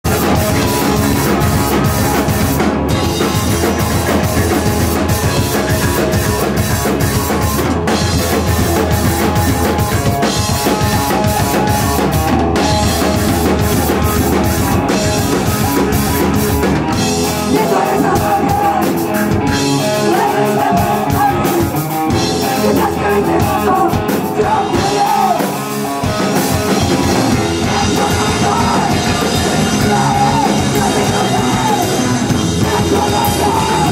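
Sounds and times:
distorted guitar: 0.0s - 33.9s
pounding drum kit: 0.0s - 33.9s
person singing into microphone: 17.4s - 21.7s, 22.4s - 25.6s, 27.4s - 33.9s.

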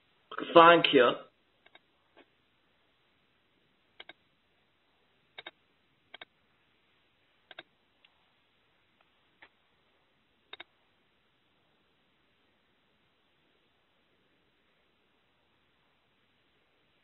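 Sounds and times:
faint computer clicks: 4.0s - 4.2s, 5.4s - 6.3s, 10.5s - 10.7s.

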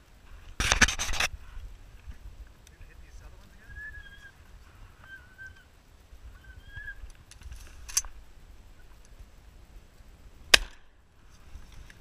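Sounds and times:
shotgun shot: 10.5s - 10.9s
sharp crack: 10.5s - 11.0s.

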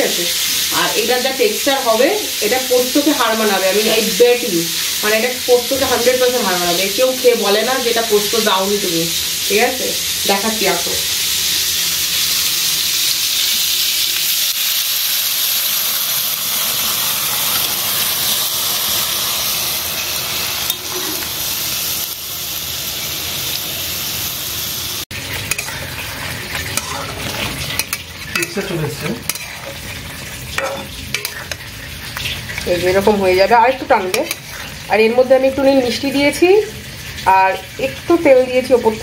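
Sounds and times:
vegetables sizzling in oil: 0.0s - 39.0s
spatula scraping pan: 20.6s - 21.4s, 25.3s - 33.2s, 33.9s - 34.9s.

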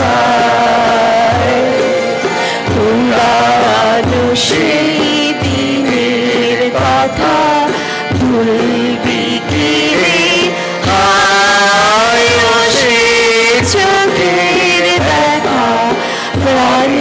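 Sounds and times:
harmonium: 0.0s - 17.0s
mixed choir singing: 0.0s - 17.0s.

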